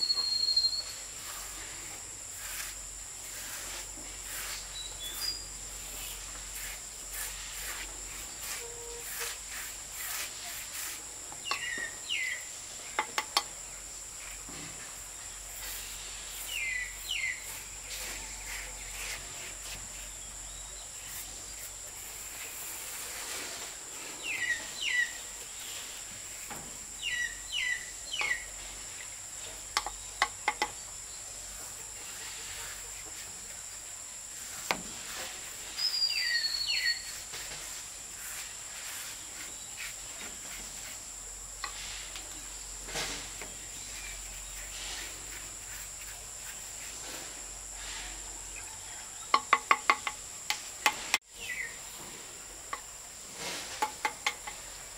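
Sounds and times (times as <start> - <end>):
bird chirping: 0.0 - 1.1, 4.7 - 5.6, 11.4 - 13.1, 16.4 - 17.6, 24.2 - 25.8, 27.0 - 28.6, 35.8 - 37.2
insects droning: 0.0 - 54.9.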